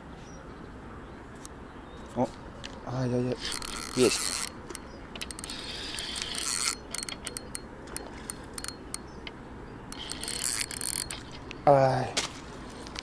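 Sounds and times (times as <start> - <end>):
spinning reel clicking: 3.4 - 9.0, 9.9 - 11.3.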